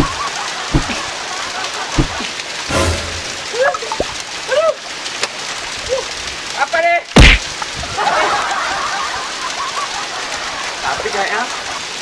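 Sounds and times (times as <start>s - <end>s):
waterfall splashing onto rocks: 0.0s - 12.0s
dull thumps: 0.7s - 1.0s.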